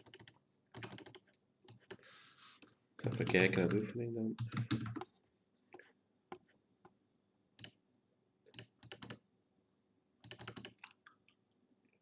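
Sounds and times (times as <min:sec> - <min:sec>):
computer keys tapping: 0:00.0 - 0:02.0, 0:03.0 - 0:03.8, 0:04.4 - 0:05.1, 0:07.6 - 0:07.8, 0:08.5 - 0:09.2, 0:10.2 - 0:11.0.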